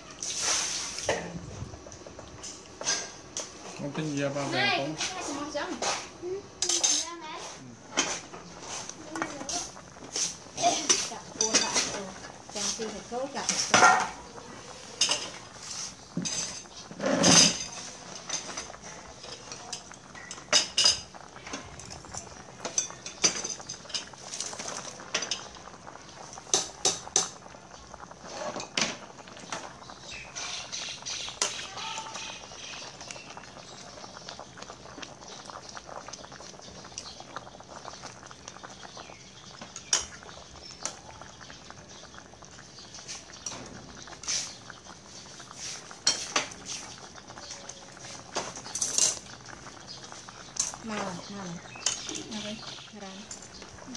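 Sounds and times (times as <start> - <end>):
broth bubbling: 0.0 - 4.4, 7.8 - 53.9
metal utensils clinking on pot: 6.6 - 7.2, 9.2 - 12.2, 15.0 - 15.5, 16.1 - 25.6, 39.7 - 41.0, 46.0 - 46.6, 47.4 - 49.4, 50.6 - 53.6.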